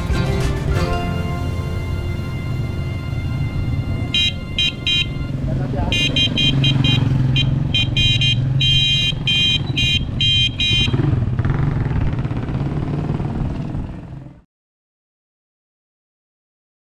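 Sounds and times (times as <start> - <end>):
horn toots: 0.0 - 11.2
vehicle engine running: 0.0 - 14.4.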